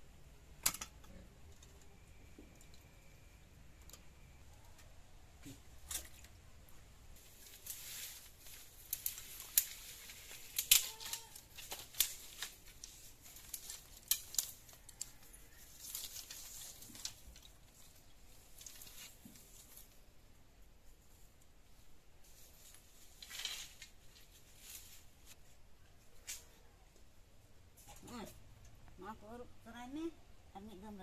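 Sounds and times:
bamboo sticks and straw rustling: 5.4 - 27.0
sharp cracks and clicks: 10.4 - 12.6.

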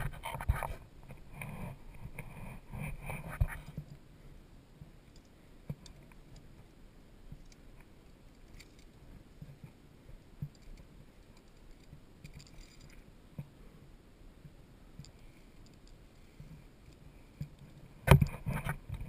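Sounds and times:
climbing gear clicks and knocks: 7.3 - 13.5, 15.0 - 19.0.

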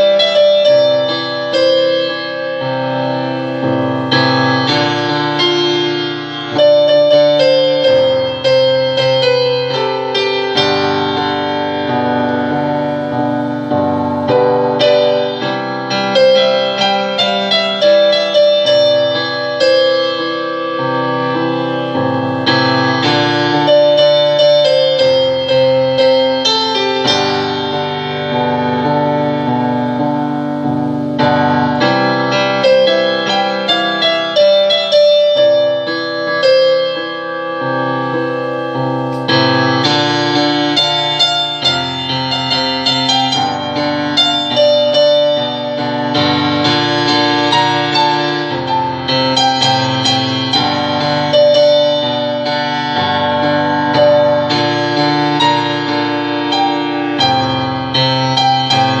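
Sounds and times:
solo piano: 0.0 - 59.0.

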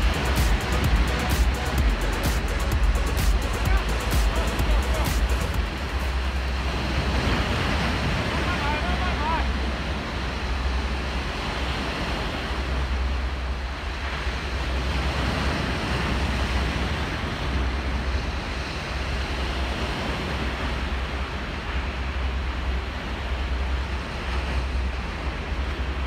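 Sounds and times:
surf breaking over boulders: 0.0 - 13.2.

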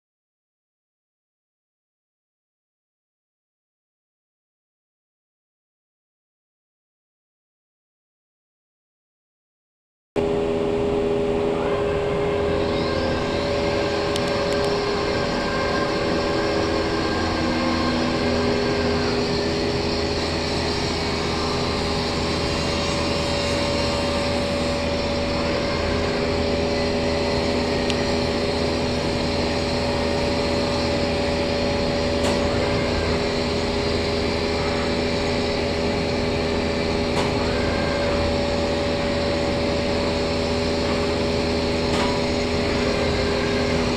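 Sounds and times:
cnc router humming: 10.2 - 43.9.

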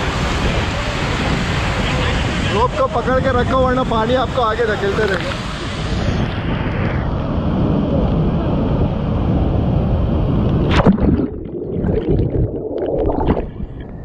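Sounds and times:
rushing churning water: 10.4 - 14.0
sharp splash: 10.6 - 13.6.

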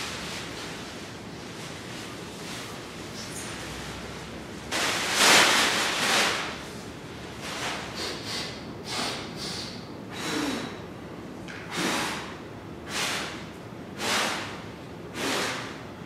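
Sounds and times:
plastic bag rustling and swishing: 0.0 - 4.1.

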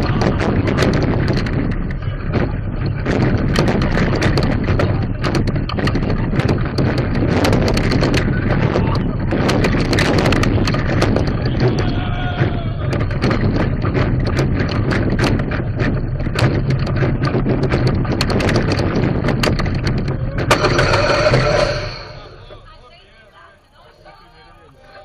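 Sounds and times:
wind on microphone: 0.0 - 22.7
roller coaster wheels rumbling: 0.0 - 22.9.

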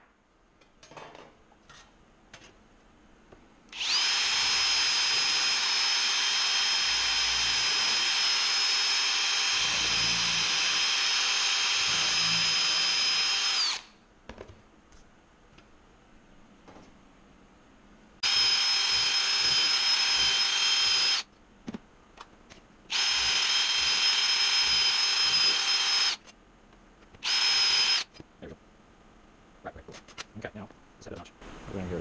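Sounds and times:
cordless drill drilling metal plate: 3.7 - 13.9, 18.2 - 21.2, 22.9 - 26.2, 27.2 - 28.2.

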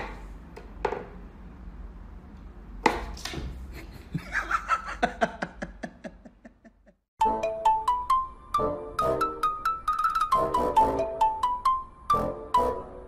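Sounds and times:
person laughing: 3.7 - 7.0.

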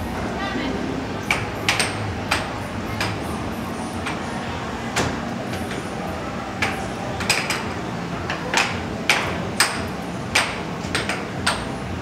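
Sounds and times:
air hockey puck clacks: 1.2 - 3.2, 6.6 - 7.7, 8.3 - 11.7.

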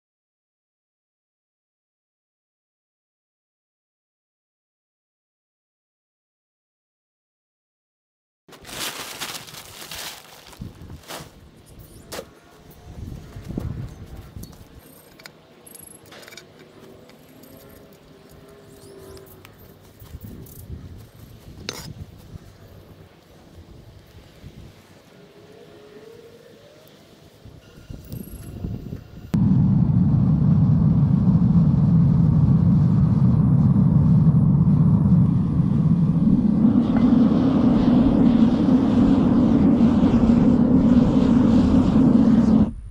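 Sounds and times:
quiet outdoor background: 8.5 - 42.9
furnace burner rumbling: 29.3 - 42.7.

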